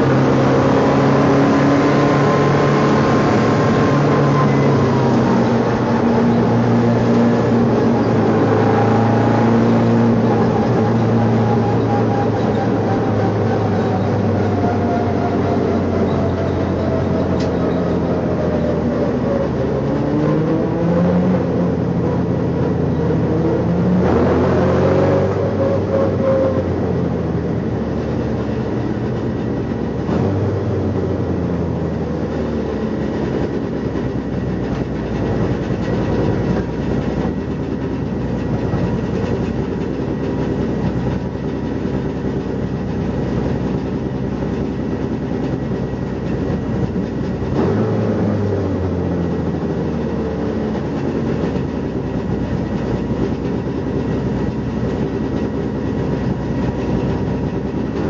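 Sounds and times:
race car engine revving: 0:00.0 - 0:58.0.

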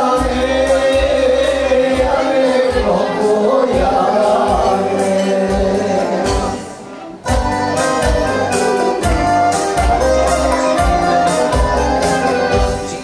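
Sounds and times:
music with steady drumbeat: 0:00.0 - 0:13.0
voices singing folk song: 0:00.0 - 0:13.0.

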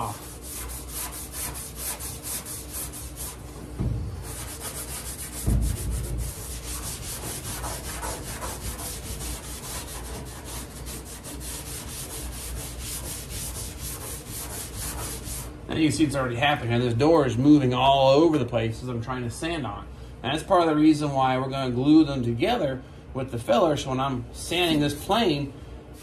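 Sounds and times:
abrasive pad scuffing metal: 0:00.0 - 0:16.8
dull thumps: 0:03.5 - 0:08.4.

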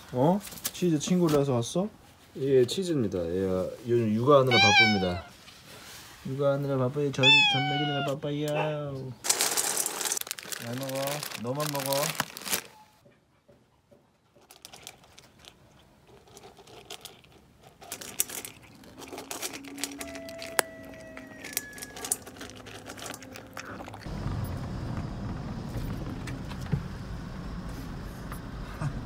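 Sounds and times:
cat crunching dry kibble: 0:04.5 - 0:05.2, 0:09.2 - 0:12.7, 0:14.4 - 0:24.1
car cabin rumble: 0:24.0 - 0:29.0.

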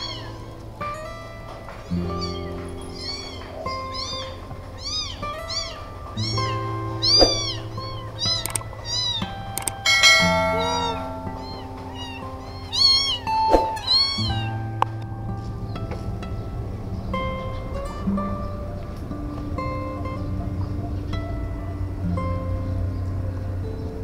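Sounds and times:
kittens mewing: 0:00.0 - 0:14.5
background music: 0:00.0 - 0:24.0.

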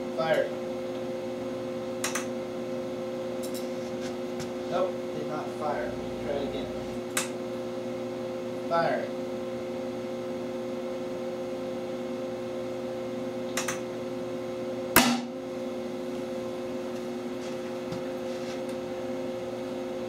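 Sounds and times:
electrical hum: 0:01.3 - 0:08.6.

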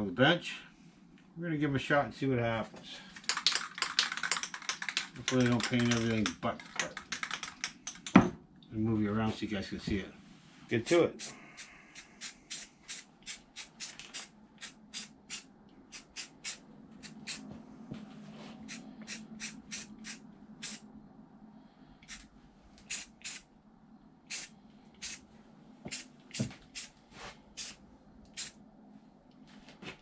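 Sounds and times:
spray can hissing spritzes: 0:11.1 - 0:17.4, 0:18.7 - 0:20.8, 0:22.0 - 0:23.5, 0:24.3 - 0:25.2, 0:25.9 - 0:26.9, 0:27.6 - 0:28.6.

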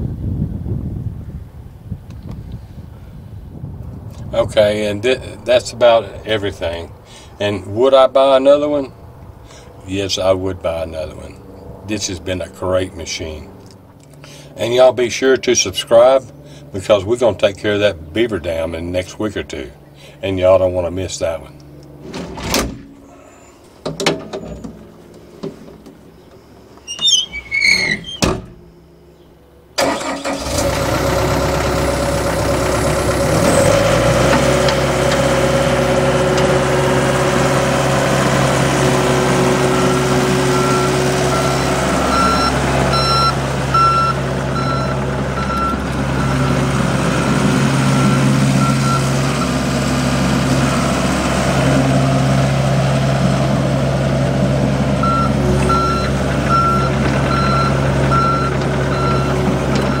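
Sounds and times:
excavator diesel engine: 0:04.2 - 1:00.0
travel alarm beeping: 0:40.5 - 0:46.6, 0:48.0 - 0:49.5, 0:55.0 - 1:00.0.

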